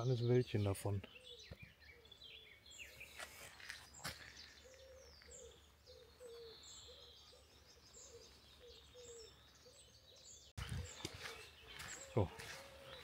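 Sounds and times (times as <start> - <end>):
birds chirping and trilling: 0.0 - 13.0.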